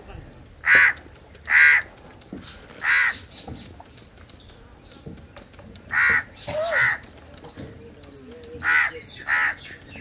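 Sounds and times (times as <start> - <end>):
crow cawing: 0.6 - 1.9, 2.8 - 3.2, 5.9 - 7.0, 8.6 - 9.6.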